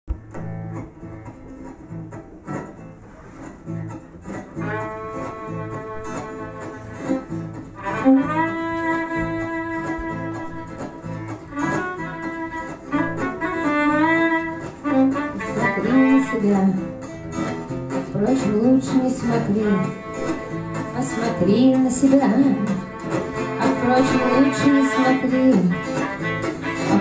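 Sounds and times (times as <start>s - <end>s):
acoustic guitar strumming: 0.1s - 27.0s
instrument holding long notes: 22.6s - 27.0s.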